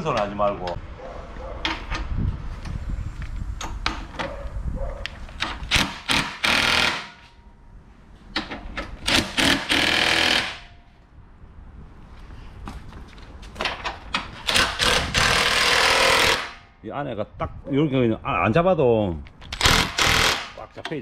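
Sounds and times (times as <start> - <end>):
tool handling clicks and knocks: 1.6 - 2.2, 5.1 - 6.4, 8.3 - 9.8, 13.6 - 15.0
impact driver hammering: 5.7 - 7.3, 8.4 - 10.7, 19.6 - 20.6.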